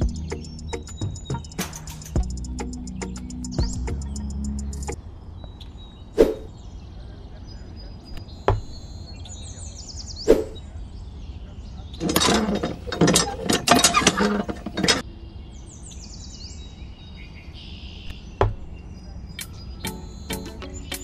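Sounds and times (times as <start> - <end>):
birds chirping: 0.0 - 21.0
plastic parts clicking and rattling: 12.0 - 15.0.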